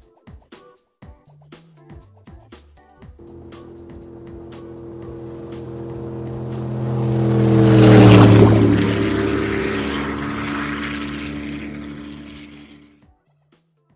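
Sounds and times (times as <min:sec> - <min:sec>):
powerboat engines passing: 0:03.2 - 0:12.8.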